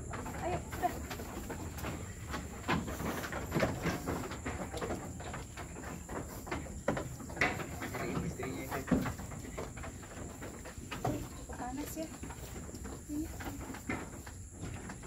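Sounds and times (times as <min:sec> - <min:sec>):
knocks and scuffs: 0:00.0 - 0:15.0
sheep moving in wooden pens: 0:00.0 - 0:15.0.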